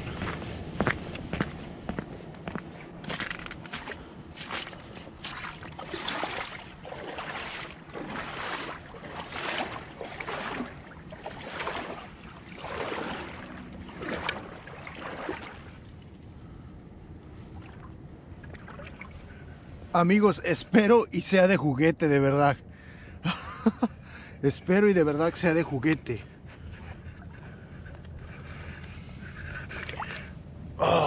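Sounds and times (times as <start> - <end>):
footsteps sloshing through water: 0.0 - 19.9, 26.4 - 30.4.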